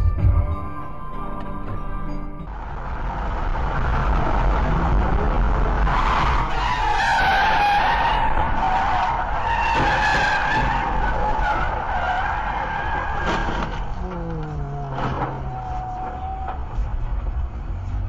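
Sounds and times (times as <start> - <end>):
road rumble: 0.0 - 18.0
car tyres squealing in a skid: 5.6 - 14.0, 14.9 - 17.2.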